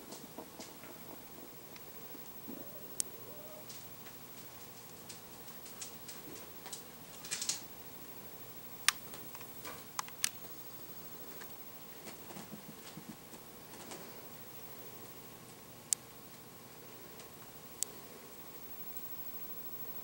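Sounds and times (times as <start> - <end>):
puppies' paws clicking: 3.0 - 7.7.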